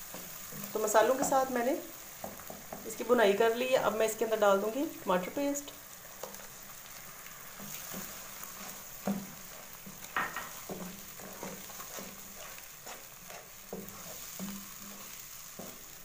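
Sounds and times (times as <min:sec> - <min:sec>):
spatula scraping and knocking pan: 0:00.0 - 0:03.4, 0:07.5 - 0:16.0
food sizzling in a wok: 0:00.0 - 0:16.0.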